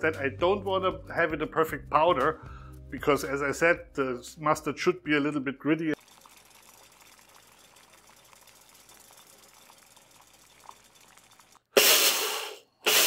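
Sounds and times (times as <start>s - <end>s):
pot simmering: 6.0s - 12.6s
blender grinding seeds: 6.0s - 13.0s.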